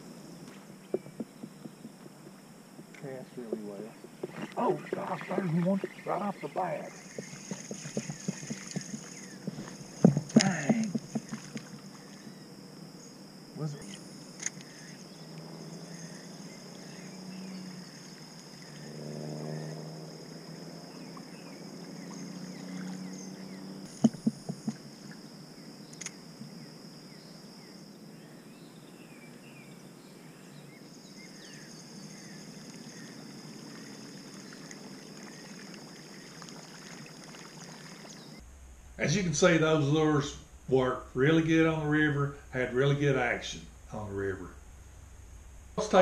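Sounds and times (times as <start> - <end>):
low hum: 0.0 - 26.6, 36.5 - 46.0
high-pitched insect drone: 0.0 - 44.4
bird chirps: 0.8 - 2.4, 3.0 - 14.0, 20.9 - 26.1
sharp knocks: 0.9 - 3.0, 7.0 - 11.8, 23.9 - 24.8.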